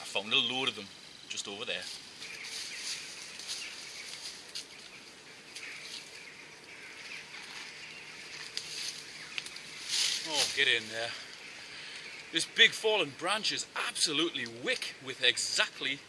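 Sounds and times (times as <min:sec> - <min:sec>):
footsteps in dry leaves: 0:01.8 - 0:11.2
twigs snapping: 0:07.3 - 0:12.4.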